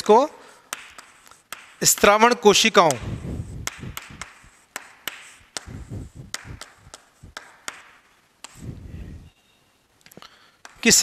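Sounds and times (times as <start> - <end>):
chalk scraping: 0.5 - 2.2, 2.8 - 8.7
chalk tapping on chalkboard: 0.6 - 8.7, 10.6 - 11.0.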